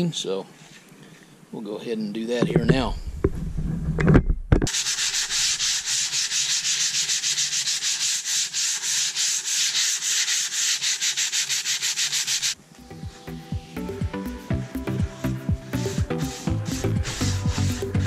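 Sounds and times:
sandpaper rubbing on wood: 0:04.7 - 0:12.6, 0:14.8 - 0:18.0.

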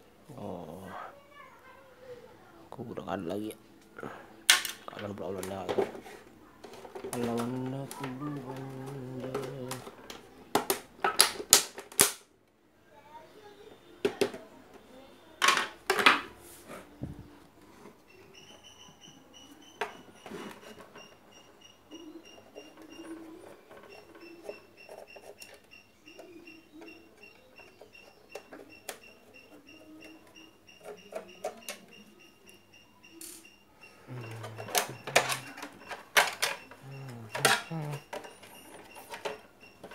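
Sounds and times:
clicks and knocks of hard parts: 0:04.5 - 0:12.2, 0:34.4 - 0:39.9.

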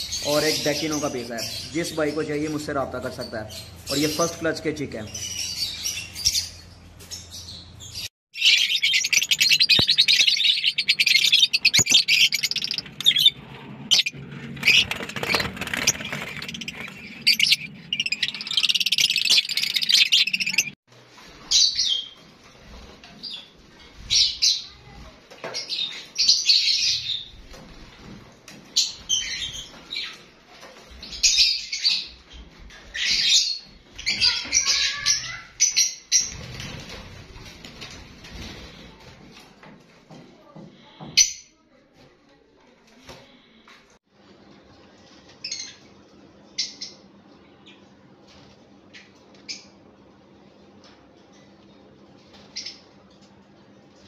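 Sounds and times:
lovebirds chirping: 0:00.0 - 0:20.8.

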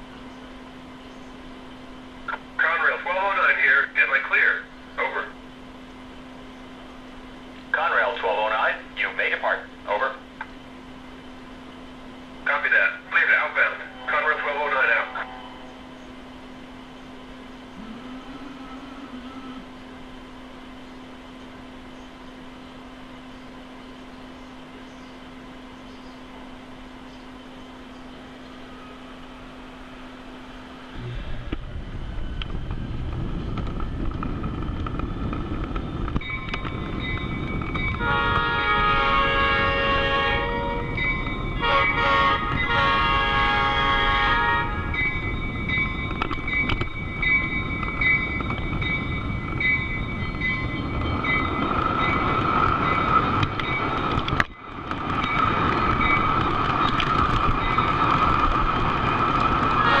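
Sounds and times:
faint steady tones: 0:00.0 - 1:00.0
model train wheels and motor rumbling: 0:00.0 - 1:00.0
wheels clicking over rail joints: 0:31.5 - 0:43.9, 0:44.8 - 1:00.0.

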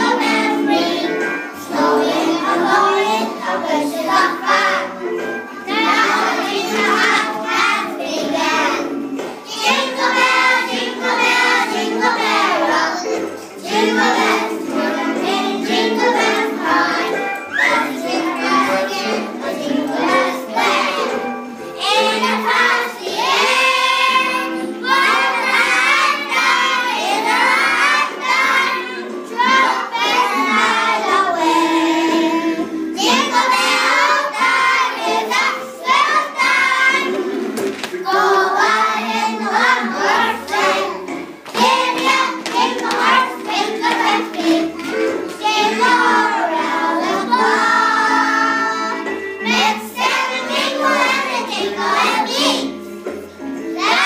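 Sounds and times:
young children singing: 0:00.0 - 0:54.0.

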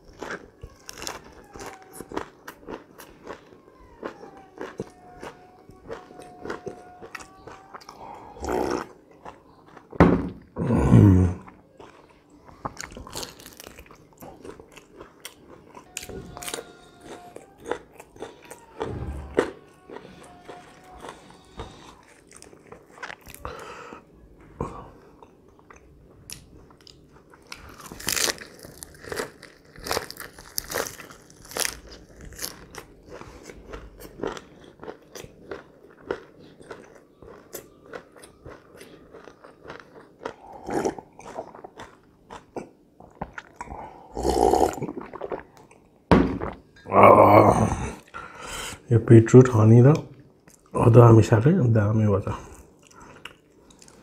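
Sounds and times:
chewing with wet mouth clicks: 0:32.3 - 0:43.7, 0:52.5 - 0:54.0
person gulping a drink: 0:39.0 - 0:48.2.

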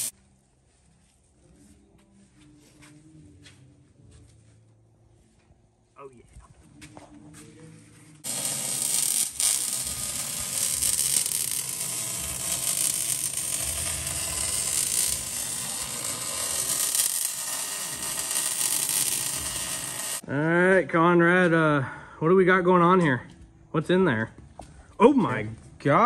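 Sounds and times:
welding arc crackling and sizzling: 0:08.2 - 0:20.2.

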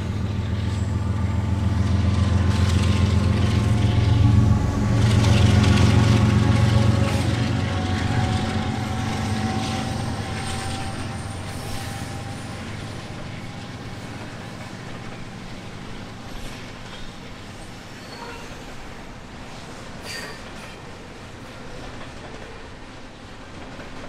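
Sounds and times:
diesel locomotive engine running: 0:00.0 - 0:17.8.

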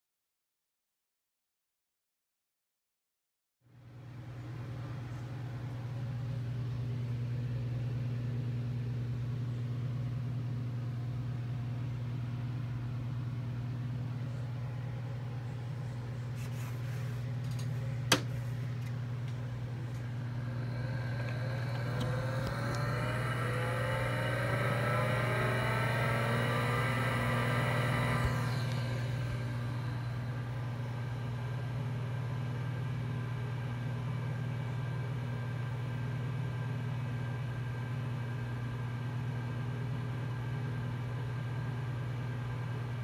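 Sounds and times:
steady low hum: 0:03.7 - 0:43.0
hard drive spinning up whine: 0:19.4 - 0:31.8.

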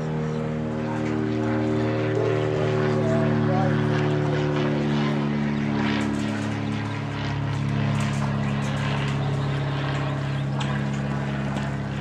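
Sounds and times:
motor humming steadily: 0:00.0 - 0:12.0.

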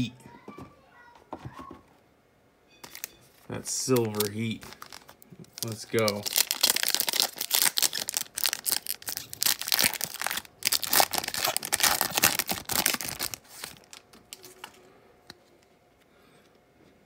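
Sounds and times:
wrappers tearing and crinkling: 0:03.8 - 0:14.7.

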